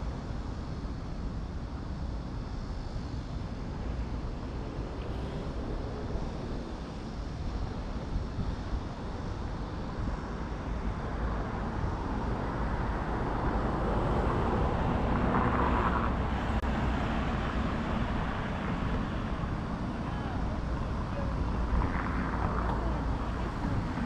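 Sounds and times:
street traffic road noise: 0:00.0 - 0:24.0
vehicle passing: 0:12.2 - 0:24.0.

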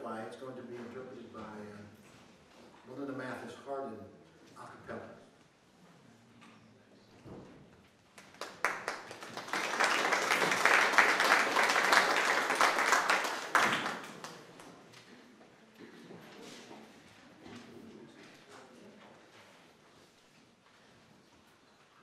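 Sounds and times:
audience applauding: 0:08.1 - 0:14.7.

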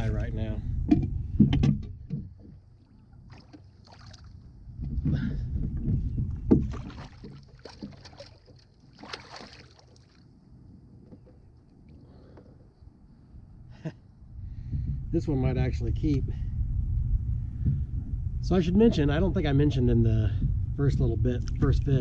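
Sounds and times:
knocks on boat: 0:00.8 - 0:02.6, 0:04.8 - 0:08.2
water splashes: 0:02.7 - 0:04.5, 0:06.5 - 0:10.3.

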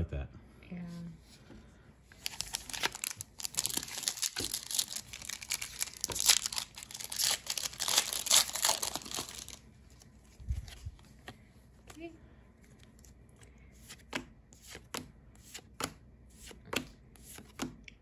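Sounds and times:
foil wrapper tearing and crinkling: 0:02.2 - 0:09.6.

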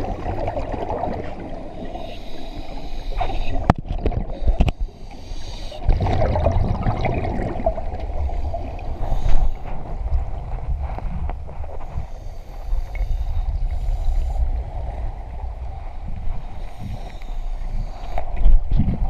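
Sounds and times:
water gurgling and bubbling: 0:00.0 - 0:02.1, 0:03.2 - 0:04.8, 0:05.8 - 0:09.0
muffled underwater rumble: 0:00.0 - 0:19.0.

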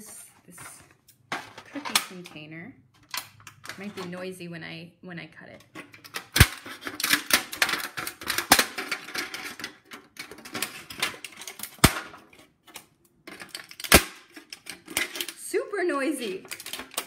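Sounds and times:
loud sharp plastic snaps: 0:06.0 - 0:09.8, 0:10.6 - 0:15.3.

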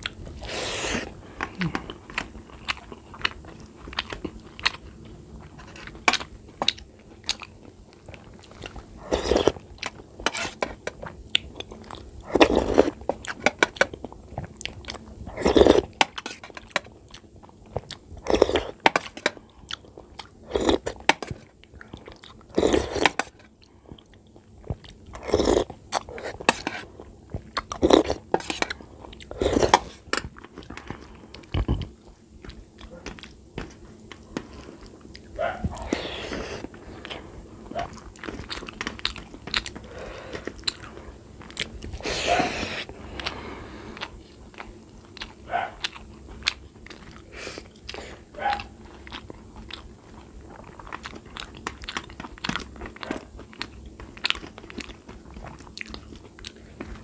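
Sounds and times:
wet chewing of food: 0:00.0 - 0:57.0.

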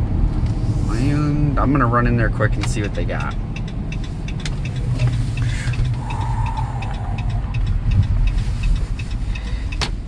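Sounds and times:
engine and road rumble: 0:00.0 - 0:10.0
regular light ticking: 0:02.4 - 0:10.0.

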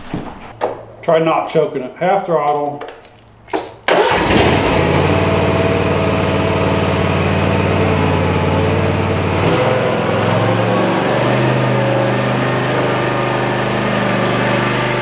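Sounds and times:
mower engine running: 0:03.9 - 0:15.0.

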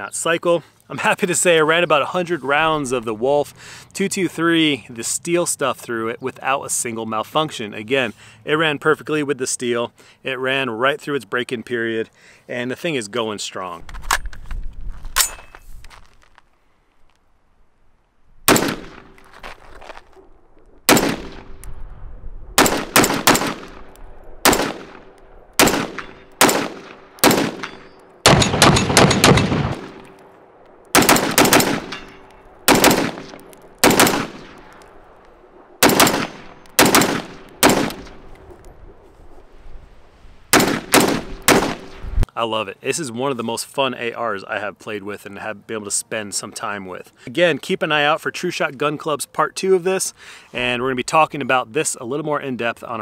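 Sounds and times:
rifle gunshots: 0:18.5 - 0:19.2, 0:20.9 - 0:21.5, 0:22.6 - 0:35.1, 0:35.8 - 0:38.3, 0:40.5 - 0:42.0.

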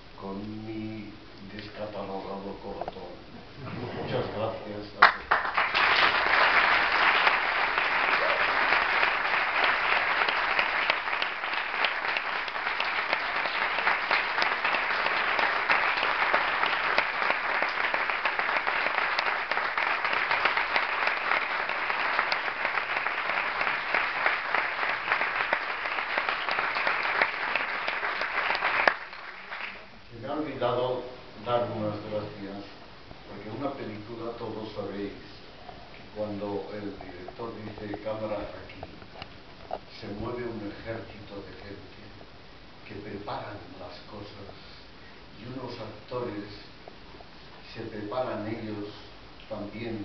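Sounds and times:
audience applauding: 0:05.0 - 0:29.9.

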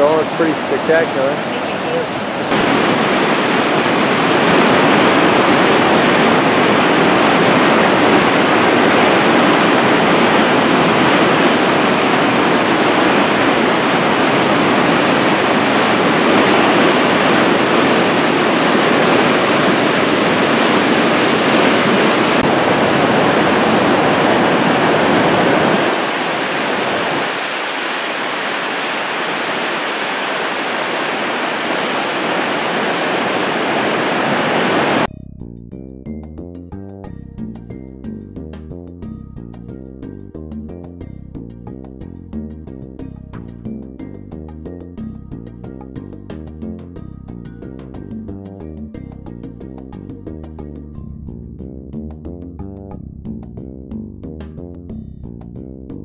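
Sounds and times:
whitewater river rushing: 0:00.0 - 0:35.1.

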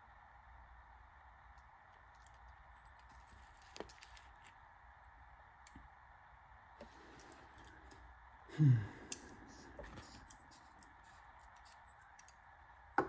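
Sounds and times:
steady low hum: 0:00.0 - 0:13.0
faint caliper clicks: 0:10.2 - 0:12.4.

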